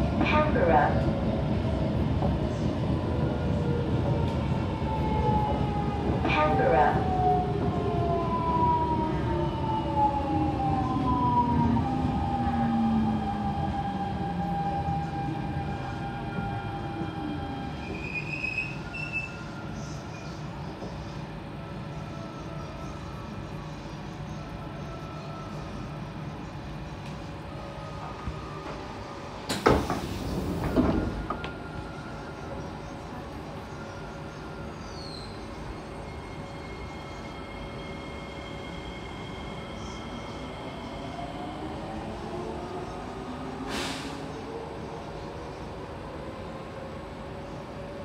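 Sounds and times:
pneumatic door hiss: 29.5s - 31.2s, 43.6s - 44.3s.

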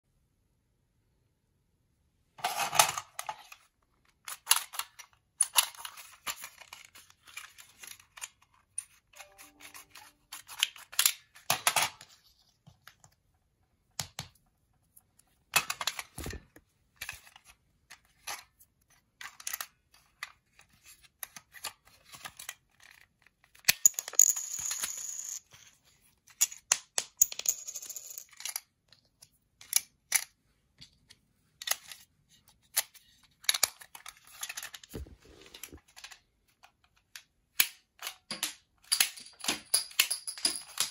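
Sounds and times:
plastic discs on wooden floor: 2.3s - 40.9s
plastic toy clicks and clatter: 2.4s - 12.0s.

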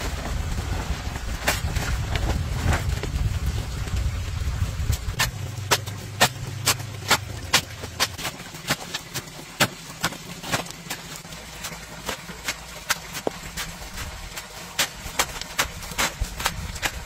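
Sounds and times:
low rumble: 0.0s - 8.5s.

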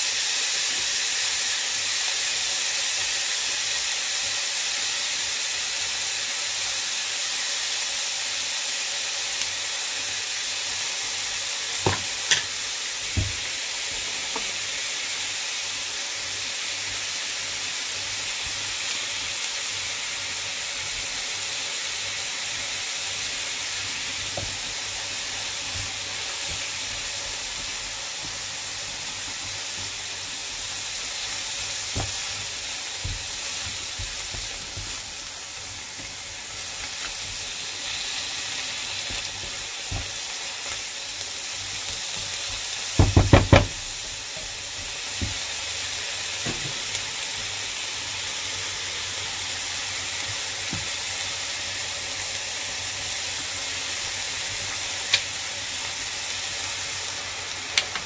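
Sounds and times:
vegetables sizzling in frying pan: 0.0s - 58.0s
spatula knocking pan: 11.8s - 14.6s, 31.8s - 35.3s, 39.0s - 40.2s, 42.0s - 45.5s.

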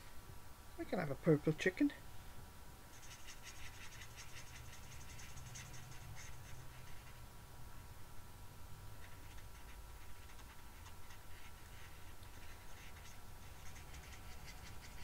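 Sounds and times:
marker scratching on cardstock: 2.9s - 7.2s, 9.0s - 15.0s.

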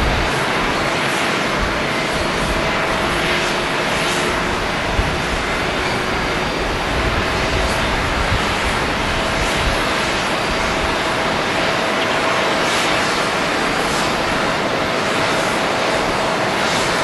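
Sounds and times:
jet engines at taxi thrust: 0.0s - 17.0s.

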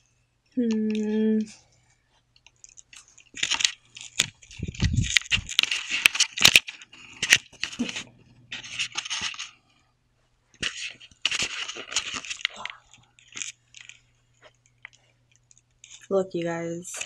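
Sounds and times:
faint low hum: 0.0s - 17.0s
camera handling rustling and knocking: 2.4s - 9.5s, 10.6s - 16.0s
low thumps: 4.5s - 5.6s.

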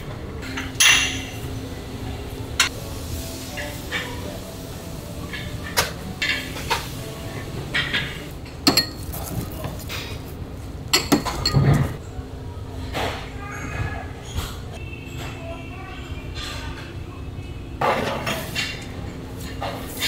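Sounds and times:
dishes and utensils clinking: 0.4s - 1.8s, 2.6s - 10.3s, 10.9s - 12.0s, 12.9s - 17.1s, 17.8s - 20.0s
faint voices: 11.8s - 20.0s.

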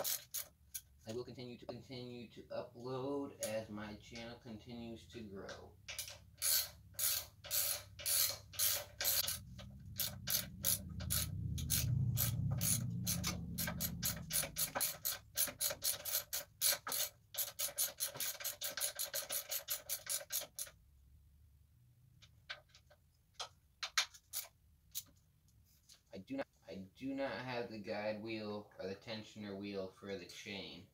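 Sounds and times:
ratchet wrench clicking: 0.0s - 0.9s, 5.9s - 20.8s
low hum: 9.2s - 14.7s.

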